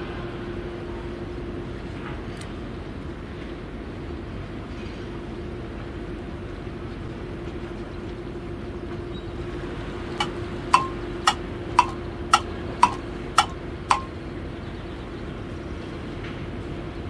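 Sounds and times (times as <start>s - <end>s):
sharp metallic clanks: 10.2s - 14.1s.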